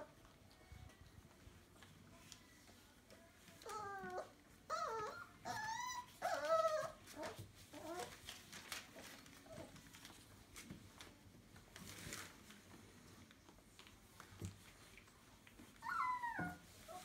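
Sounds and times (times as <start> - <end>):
puppy whining: 3.4 - 10.2, 15.5 - 17.0.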